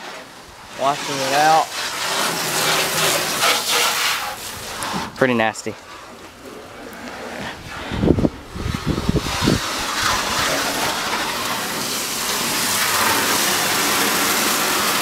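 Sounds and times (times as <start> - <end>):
hose spraying on steel: 0.0 - 6.2, 7.6 - 15.0
low rumbling thumps: 7.4 - 10.4.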